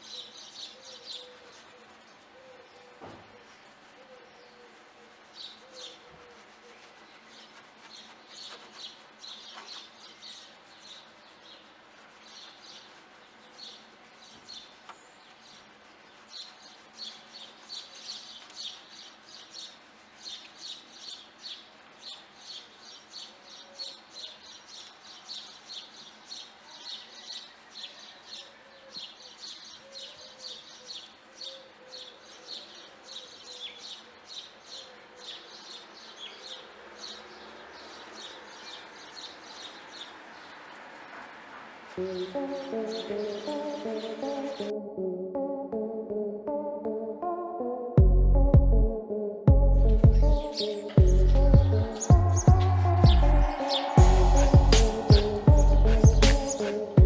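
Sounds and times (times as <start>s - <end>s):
brush scrubbing foam: 0.0s - 2.3s, 2.9s - 22.6s, 25.4s - 28.5s, 36.0s - 44.6s, 54.0s - 57.0s.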